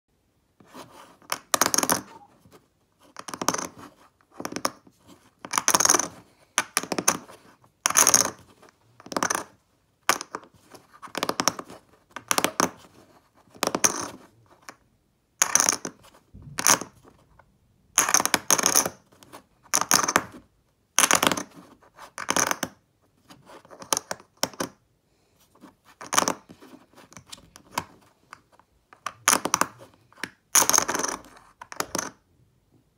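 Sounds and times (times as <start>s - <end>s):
clay poker chips clicking: 1.3s - 2.3s, 3.1s - 4.8s, 5.4s - 12.8s, 13.5s - 14.8s, 15.4s - 16.0s, 18.0s - 20.4s, 21.0s - 22.8s, 23.6s - 24.8s, 26.0s - 28.4s, 29.0s - 32.2s.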